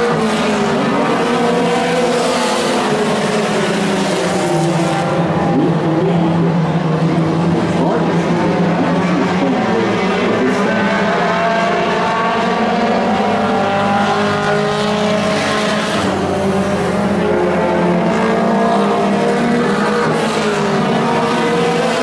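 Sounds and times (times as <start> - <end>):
race truck engines accelerating: 0.0 - 22.0.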